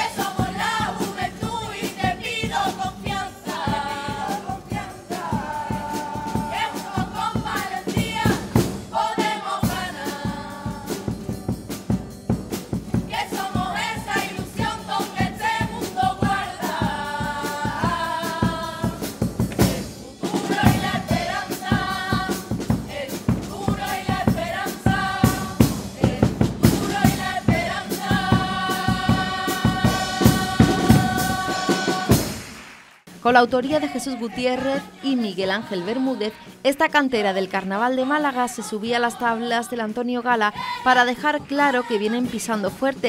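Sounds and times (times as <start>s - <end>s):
chorus singing in harmony: 0.0s - 11.4s, 12.9s - 32.4s, 33.6s - 36.7s, 37.3s - 39.9s, 40.5s - 40.9s, 41.6s - 42.4s
guitars strumming a beat: 0.0s - 32.5s.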